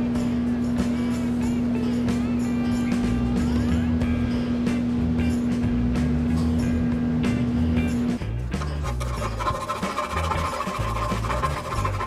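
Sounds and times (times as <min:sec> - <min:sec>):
background music with bass: 0:00.0 - 0:12.0
file rasping on metal: 0:08.6 - 0:12.0.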